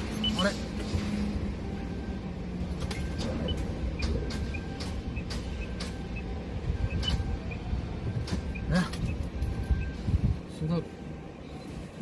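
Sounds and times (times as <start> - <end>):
truck cab rumble: 0.0 - 12.0
sharp clicks: 2.8 - 6.3.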